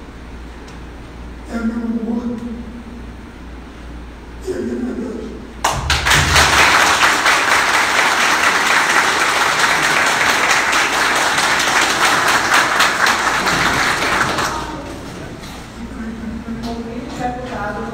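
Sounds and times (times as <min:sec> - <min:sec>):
audience applauding: 0:05.6 - 0:15.0.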